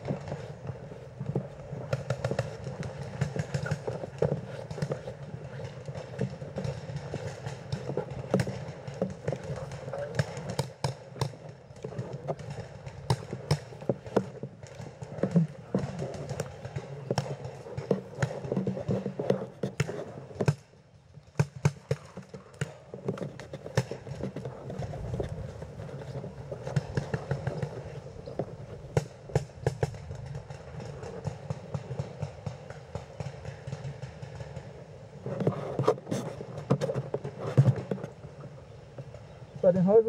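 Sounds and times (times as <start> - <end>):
paintball markers firing: 0.0 - 20.7, 21.4 - 38.1
rustle of movement: 0.0 - 20.8, 21.5 - 40.0.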